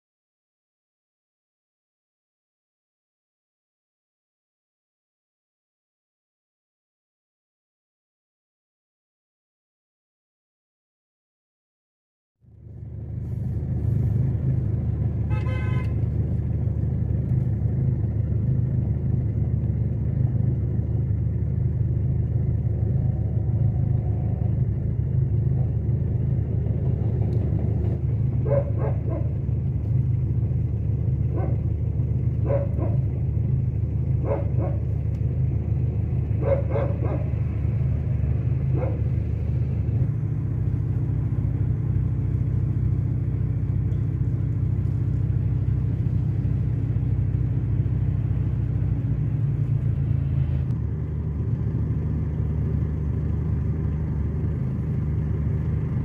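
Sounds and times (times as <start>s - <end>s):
car engine humming: 12.5s - 56.0s
dog barking: 28.4s - 29.4s, 31.3s - 31.7s, 32.4s - 33.1s, 34.2s - 34.9s, 36.4s - 37.4s, 38.7s - 39.1s.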